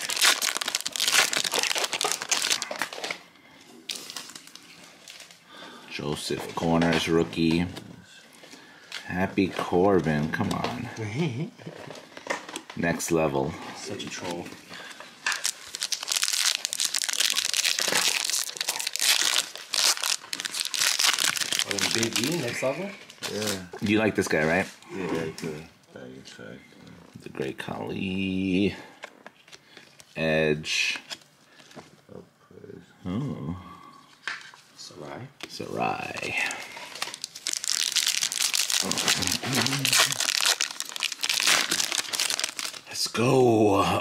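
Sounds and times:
cards rustling: 0:00.0 - 0:03.2, 0:13.9 - 0:22.5, 0:35.4 - 0:42.9
foil wrapper crinkling: 0:00.0 - 0:05.7, 0:14.1 - 0:23.7, 0:35.6 - 0:43.1.

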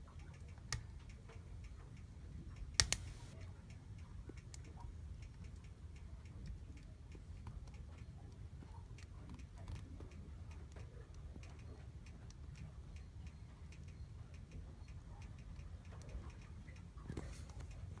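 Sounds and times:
wood fire crackling: 0:00.6 - 0:01.0, 0:02.6 - 0:03.4
low rumble of fire: 0:02.2 - 0:13.8.

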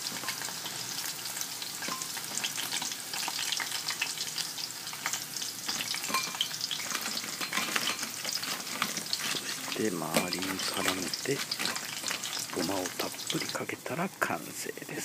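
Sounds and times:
hot oil sizzling and popping: 0:00.0 - 0:15.0.

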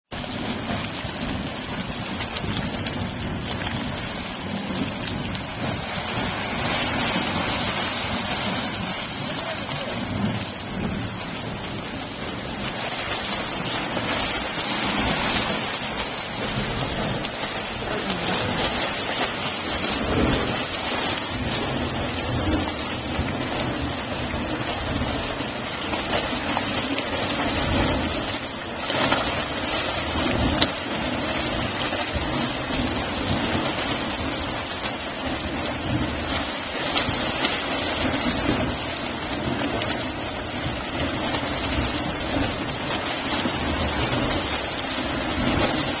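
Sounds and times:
low rumble: 0:00.1 - 0:46.0
splashing sloshing water: 0:00.4 - 0:46.0.

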